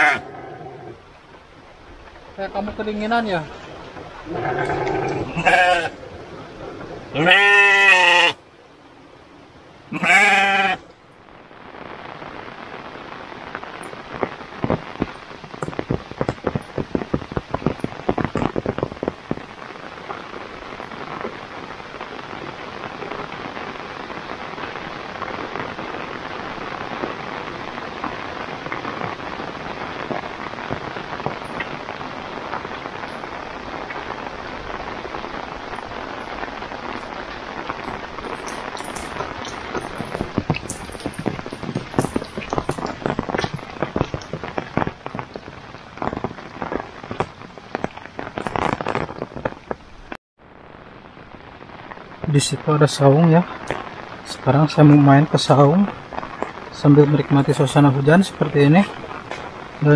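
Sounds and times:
sheep bleating: 0:00.0 - 0:00.5, 0:04.3 - 0:06.0, 0:07.1 - 0:08.4, 0:09.9 - 0:10.8
heavy rain: 0:00.0 - 0:59.9.

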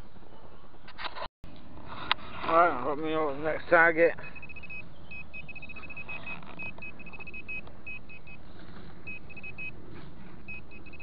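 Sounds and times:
metal detector short beeps: 0:04.2 - 0:08.4, 0:09.0 - 0:09.8, 0:10.5 - 0:11.0.

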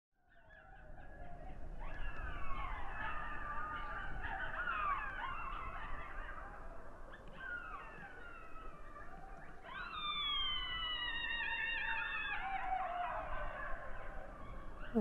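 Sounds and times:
wolves howling: 0:00.3 - 0:15.0.

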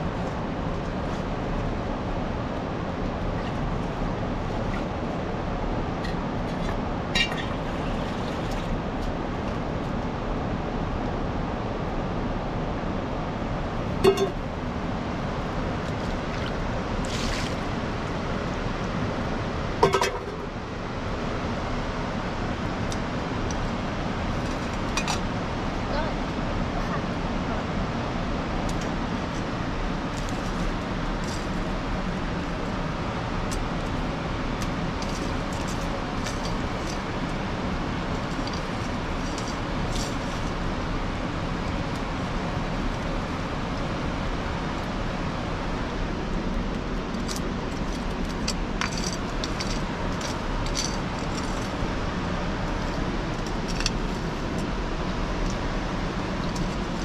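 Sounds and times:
steady rushing noise: 0:00.0 - 0:57.0.

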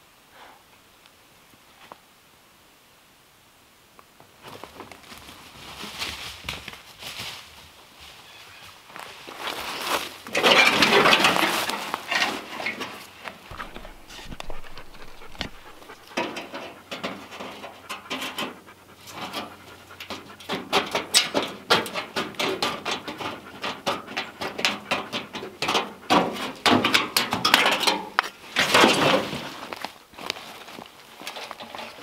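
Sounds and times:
dog panting: 0:13.5 - 0:21.1, 0:22.6 - 0:26.6.

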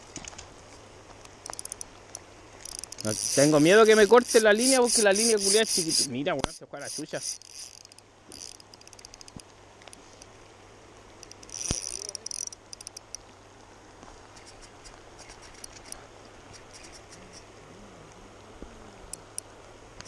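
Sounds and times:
fishing reel drag ticking: 0:01.4 - 0:10.3, 0:11.2 - 0:13.2, 0:15.2 - 0:16.0, 0:19.1 - 0:19.5.

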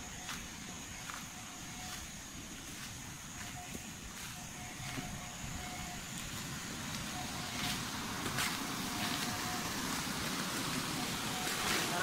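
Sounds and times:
waterfall rushing: 0:06.7 - 0:12.0.

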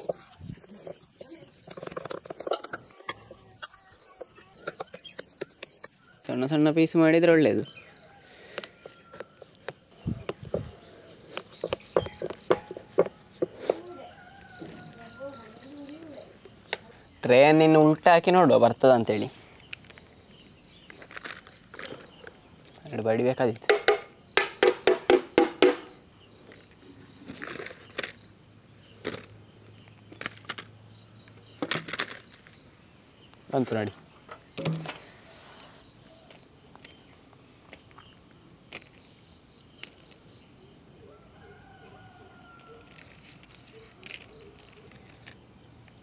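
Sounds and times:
crickets chirring: 0:00.0 - 0:46.0
metal tray knocks and clinks: 0:11.6 - 0:13.1.

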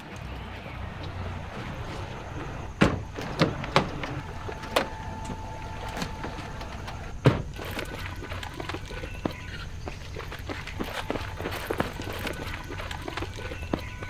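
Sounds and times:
car doors shutting: 0:00.2 - 0:07.9.

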